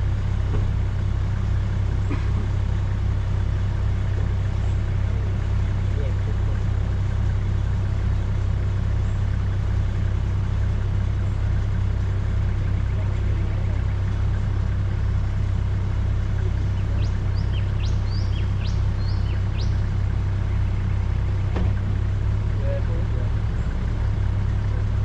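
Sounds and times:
vehicle engine idling: 0:00.0 - 0:25.0
bird chirping: 0:16.4 - 0:22.2.

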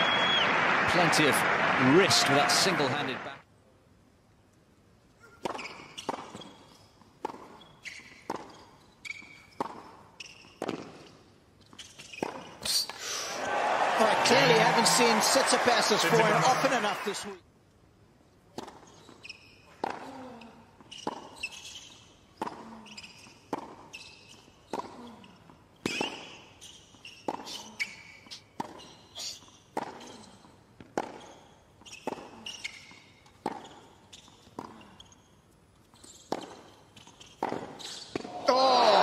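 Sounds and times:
tennis racket hitting ball: 0:30.8 - 0:31.3.

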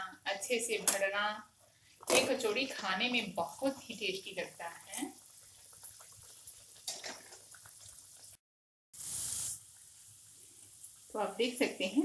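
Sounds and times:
food sizzling in hot oil: 0:02.1 - 0:08.4, 0:09.0 - 0:12.0.

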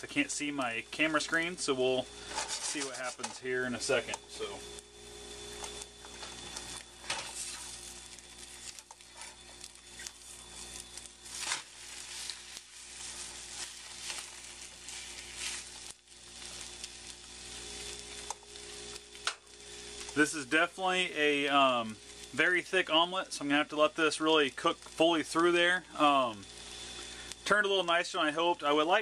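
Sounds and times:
omelette sizzling in pan: 0:00.0 - 0:29.0
spatula scraping and tapping pan: 0:02.2 - 0:03.4.

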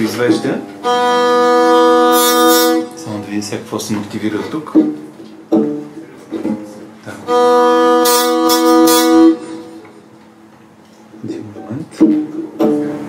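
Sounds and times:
hurdy-gurdy drone: 0:00.0 - 0:03.7, 0:05.6 - 0:10.2
short string notes: 0:00.0 - 0:10.5.

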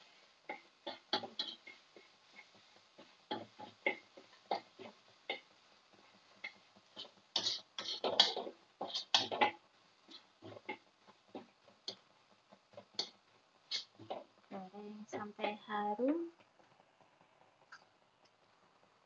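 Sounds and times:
metal spatula scraping a wok: 0:00.9 - 0:05.5, 0:06.4 - 0:10.8.

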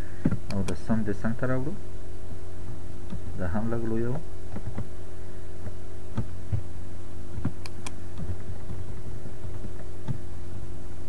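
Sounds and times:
soft low thumps: 0:00.0 - 0:01.5, 0:02.4 - 0:11.0
electrical mains hum: 0:00.0 - 0:11.0
computer mouse clicks: 0:07.4 - 0:08.4.

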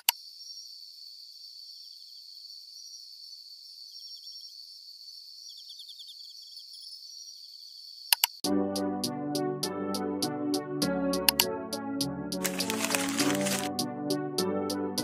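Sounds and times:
crickets trilling: 0:00.0 - 0:08.4.

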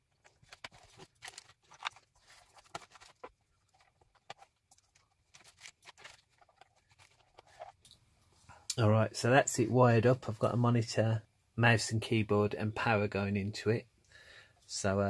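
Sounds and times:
hands handling cardboard case: 0:00.0 - 0:07.9.

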